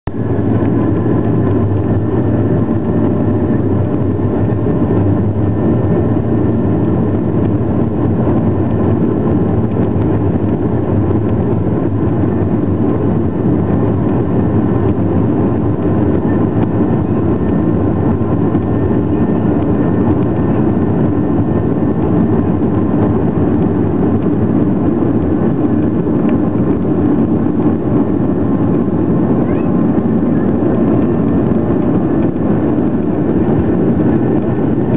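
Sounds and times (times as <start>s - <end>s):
jet engine cabin rumble: 0.0s - 34.9s
faint engine whine: 0.1s - 34.9s.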